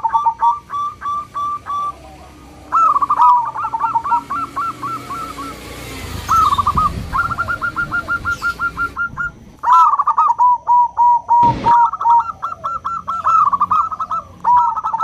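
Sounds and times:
dove cooing: 0.0s - 15.0s
thump-like burst of noise: 11.4s - 12.2s.

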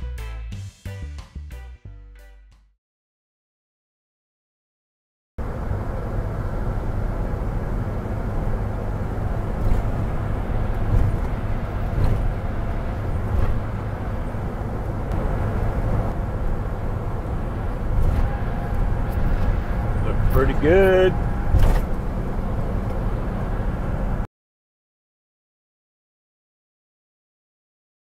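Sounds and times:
engine and tyres rumbling: 5.4s - 24.3s.

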